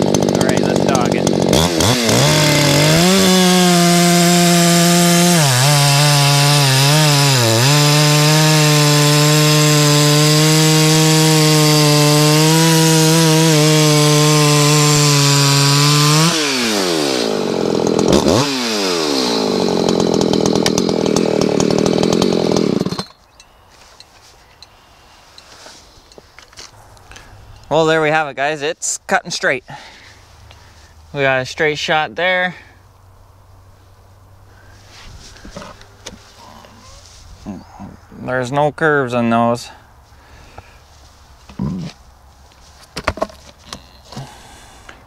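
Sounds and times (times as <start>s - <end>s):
chainsaw cutting log: 0.0s - 23.2s, 35.2s - 36.4s, 42.9s - 45.0s
chainsaw idling: 0.0s - 23.2s.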